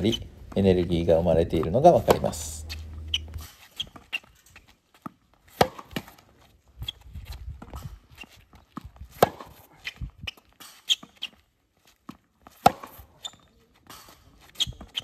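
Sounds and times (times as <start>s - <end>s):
racket hitting tennis ball: 0.5s - 4.0s, 5.5s - 6.1s, 9.1s - 9.7s, 12.5s - 13.2s
ball knocks: 1.5s - 3.4s
shoe scuffs on hard court: 1.9s - 15.0s.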